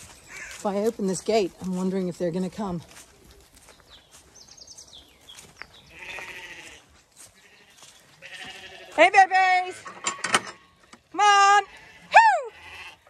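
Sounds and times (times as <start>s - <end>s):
lamb bleating: 5.9s - 9.1s, 10.2s - 13.0s.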